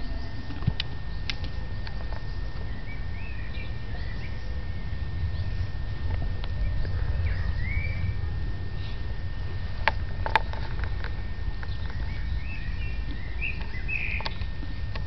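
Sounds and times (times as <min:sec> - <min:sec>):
low rumble on microphone: 0:00.0 - 0:15.0
faint bird chirps: 0:01.1 - 0:05.9, 0:06.5 - 0:09.1, 0:11.2 - 0:14.9.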